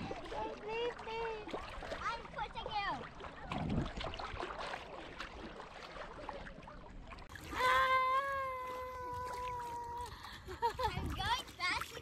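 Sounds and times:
water lapping and splashing: 0.0 - 12.0.

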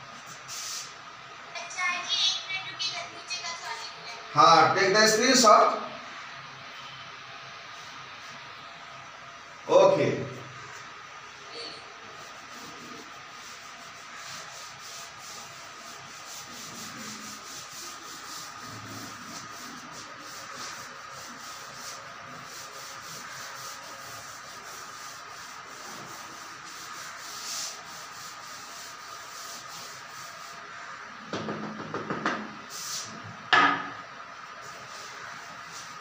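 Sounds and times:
duster scrubbing chalkboard: 11.6 - 33.2, 34.5 - 36.0.

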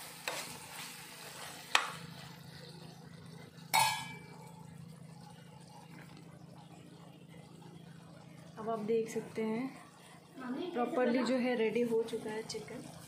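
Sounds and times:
metal cookware clinking: 3.7 - 4.4.

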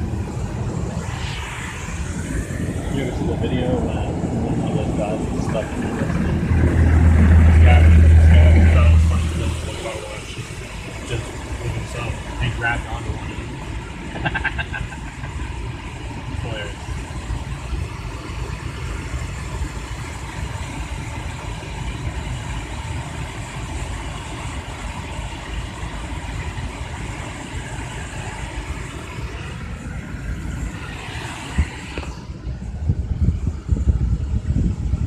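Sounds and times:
low uneven rumbling: 0.0 - 22.9
car wash blowers rushing air: 0.0 - 35.0.

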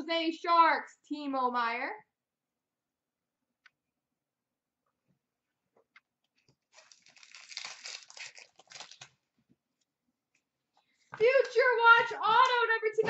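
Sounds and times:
foil wrapper crinkling and tearing: 6.7 - 9.2.

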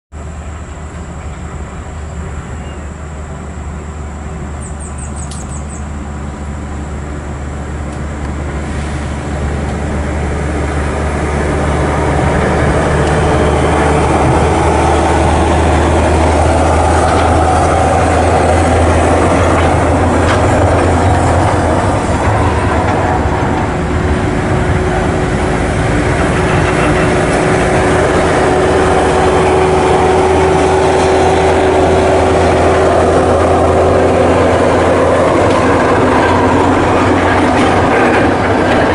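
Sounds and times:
tyres on dirt road: 0.1 - 38.9
truck diesel engine under load: 0.2 - 38.9.

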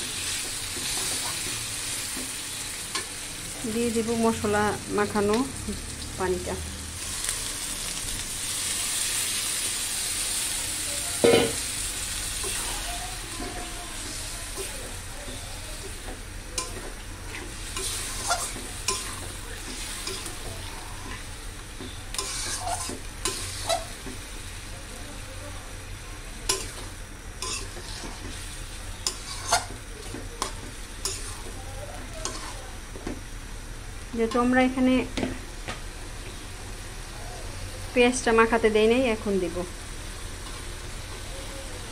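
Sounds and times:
meat sizzling in a pan: 0.0 - 41.9
metal spatula scraping and clanking: 16.6 - 21.3, 22.1 - 24.0, 26.5 - 28.4, 29.0 - 29.8, 30.4 - 32.6.

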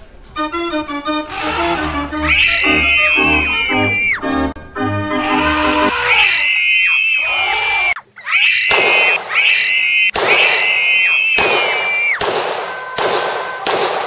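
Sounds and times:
shrill squealing tones: 1.3 - 12.2
sharp cracks: 8.6 - 14.0.

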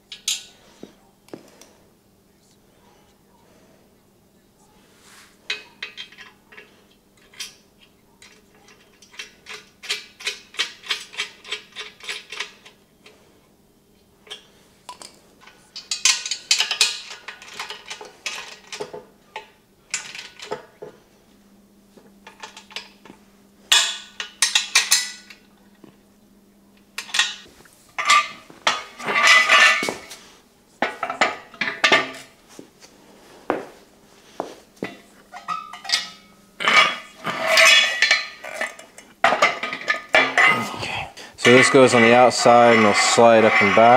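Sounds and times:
steel parts clinking and clanking: 0.0 - 0.6, 5.5 - 13.2, 14.2 - 21.0, 22.2 - 25.4, 27.0 - 30.2, 30.8 - 32.4, 34.8 - 40.8, 41.4 - 43.9.

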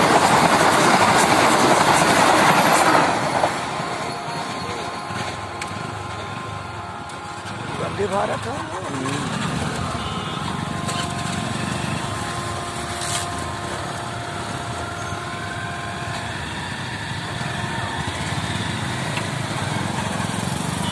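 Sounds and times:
motorcycle engines idling: 4.6 - 15.4, 16.0 - 20.9.

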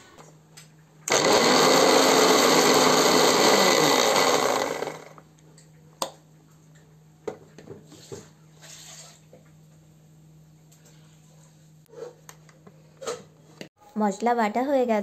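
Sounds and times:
mixer grinder running: 1.1 - 5.3.

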